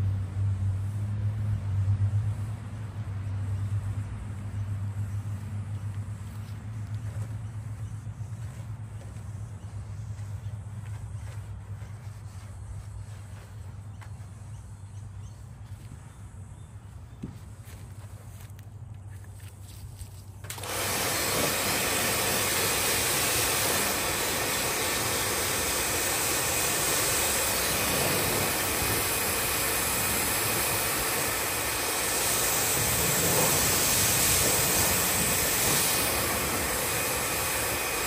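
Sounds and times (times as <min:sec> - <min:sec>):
pressure washer spraying: 0:20.4 - 0:38.0.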